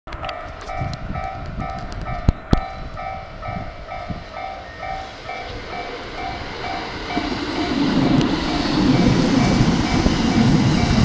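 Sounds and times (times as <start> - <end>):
approaching train rumble: 0.1 - 11.0
level crossing bell ringing: 0.3 - 7.8.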